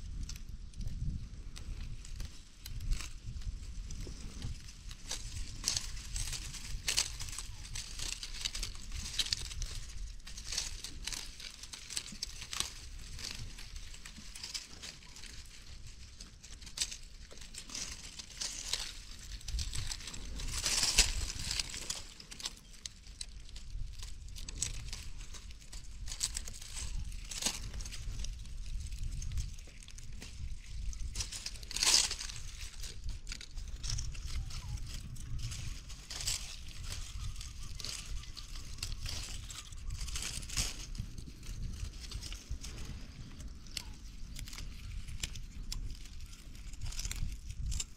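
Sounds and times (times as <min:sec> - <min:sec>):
dry leaves and twigs rustling: 0:00.0 - 0:47.9
twigs snapping: 0:00.2 - 0:47.9.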